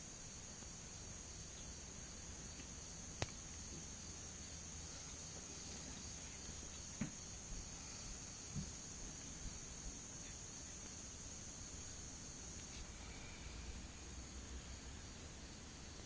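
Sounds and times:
insects trilling: 0.0 - 16.0
soft knock: 7.0 - 7.2.

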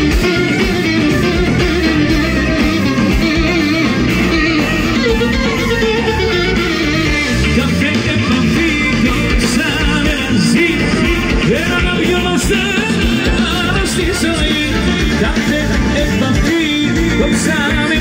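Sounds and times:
clarinet lead: 0.0 - 18.0
folk dance band through pa: 0.0 - 18.0
man singing into a microphone: 7.0 - 18.0.

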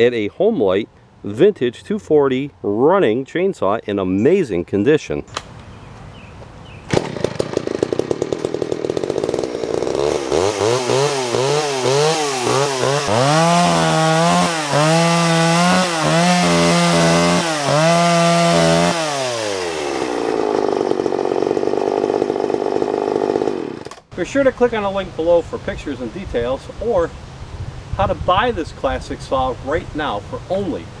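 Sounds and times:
chainsaw revving and cutting log: 6.9 - 24.1.

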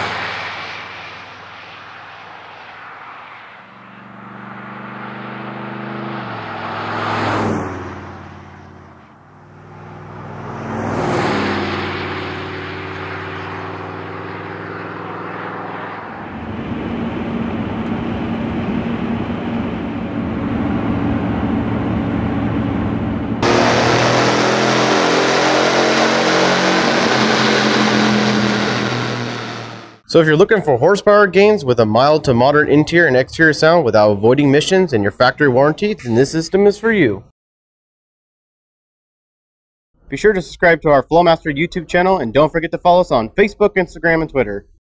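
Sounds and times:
truck exhaust driving past: 0.0 - 30.1
engine drone inside the cab: 11.4 - 30.0.

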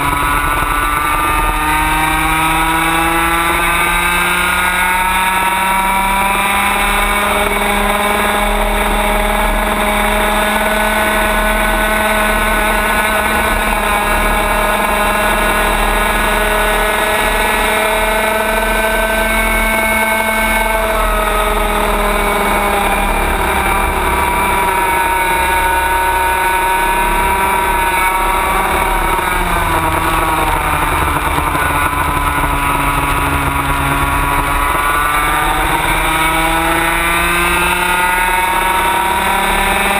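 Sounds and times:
kart engine revving: 0.0 - 39.9.

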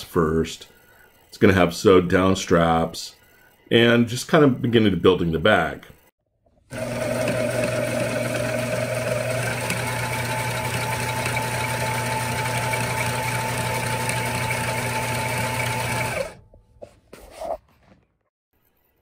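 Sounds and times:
sewing machine humming: 6.7 - 16.4.

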